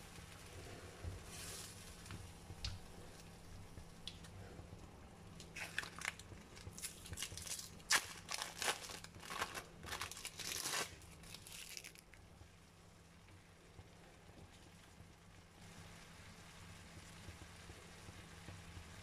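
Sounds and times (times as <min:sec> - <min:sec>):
plastic packet crinkling: 0:05.4 - 0:12.2.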